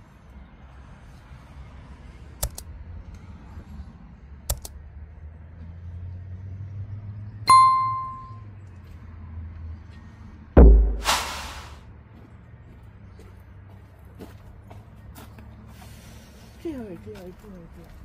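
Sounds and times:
mouse clicks: 0:02.4 - 0:02.7, 0:04.5 - 0:04.8
notification bell ding: 0:07.5 - 0:08.4
loud whoosh: 0:10.6 - 0:11.8.

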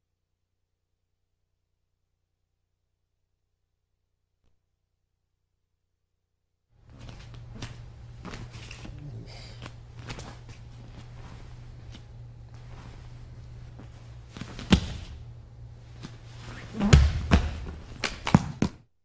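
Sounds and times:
faint clicks and rustles: 0:06.8 - 0:15.2
steady low hum: 0:06.8 - 0:18.7.

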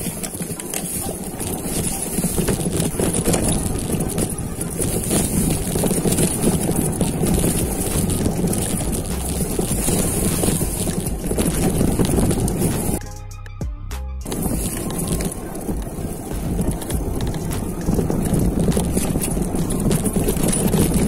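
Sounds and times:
bike rattling over bumps: 0:00.0 - 0:13.0, 0:14.2 - 0:21.0
bike tyre noise on dirt: 0:00.0 - 0:13.0, 0:14.2 - 0:21.0
wind on microphone: 0:00.0 - 0:13.0, 0:14.2 - 0:21.0.

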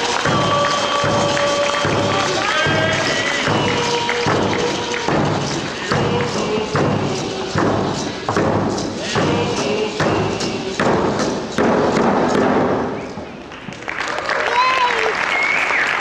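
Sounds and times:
voices singing: 0:00.0 - 0:11.6
frame drum beating: 0:00.0 - 0:12.9.

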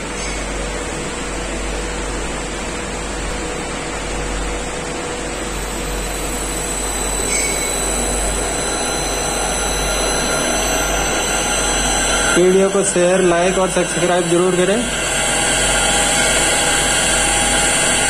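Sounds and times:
high-pitched electrical whine: 0:00.0 - 0:18.0
electric motor ramping up: 0:06.1 - 0:18.0.

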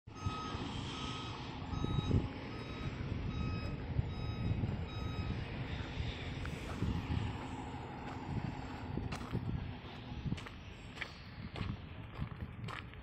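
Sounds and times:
reversing alarm beeps: 0:00.1 - 0:06.5
diesel engine running: 0:00.1 - 0:13.0.

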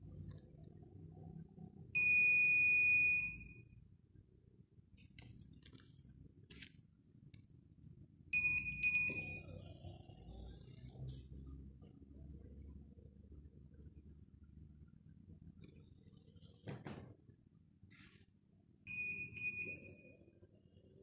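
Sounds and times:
door lock long beep: 0:02.0 - 0:03.7, 0:08.4 - 0:09.6, 0:18.9 - 0:20.3.

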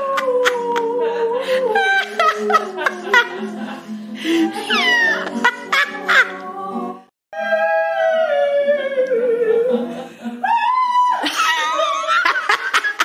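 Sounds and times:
woman singing long notes: 0:06.2 - 0:11.2.

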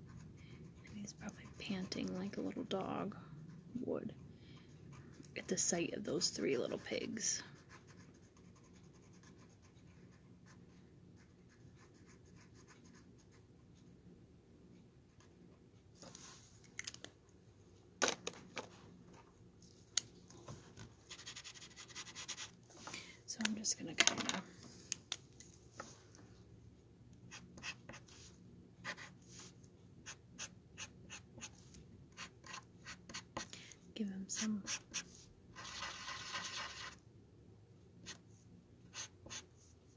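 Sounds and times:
marker scratching on wood: 0:21.1 - 0:22.5, 0:27.3 - 0:31.6, 0:32.2 - 0:33.5, 0:34.4 - 0:37.0, 0:38.9 - 0:39.5.

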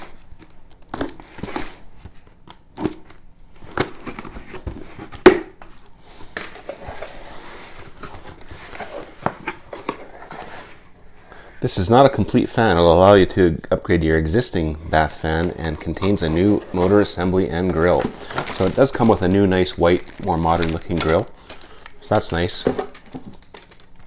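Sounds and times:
cardboard flaps rustling and scraping: 0:06.6 - 0:10.9, 0:15.3 - 0:21.2.

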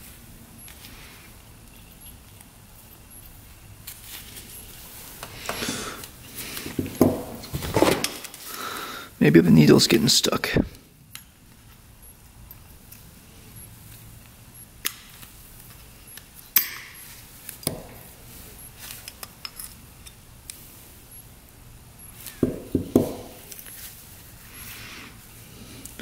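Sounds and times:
small metal parts clicking and clinking: 0:18.8 - 0:20.2.

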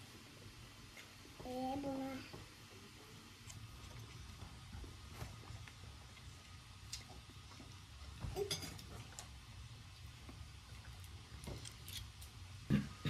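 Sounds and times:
cutlery clinking on china plates: 0:08.4 - 0:08.9.

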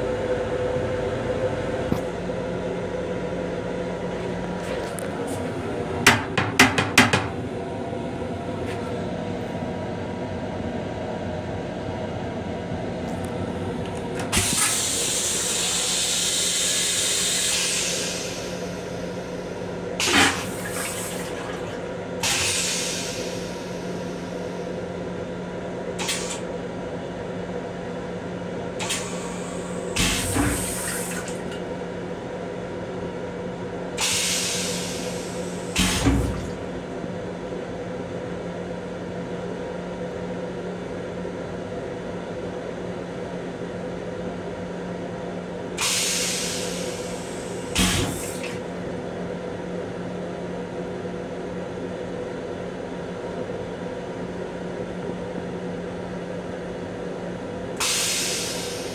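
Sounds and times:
steady hum: 0:00.0 - 0:38.9
toilet flushing water rush: 0:14.2 - 0:24.3, 0:28.8 - 0:31.7, 0:34.0 - 0:36.8, 0:45.8 - 0:48.8, 0:57.8 - 0:58.9.

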